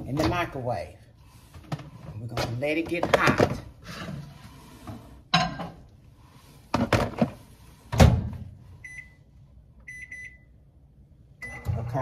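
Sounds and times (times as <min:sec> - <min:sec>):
short keypad beeps: 0:09.9 - 0:10.5.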